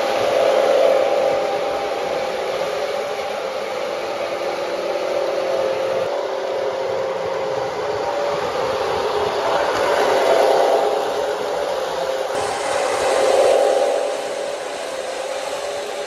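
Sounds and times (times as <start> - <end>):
wheels rumbling on rails: 0.0 - 16.0
model train motor whirring: 8.4 - 16.0.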